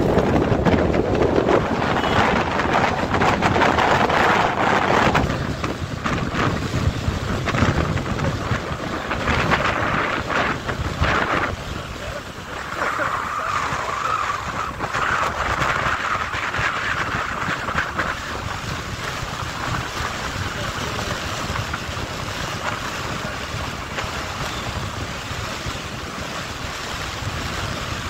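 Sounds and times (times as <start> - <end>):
motorcycle road noise: 0.0 - 28.0
wind rush over microphone: 0.0 - 28.0.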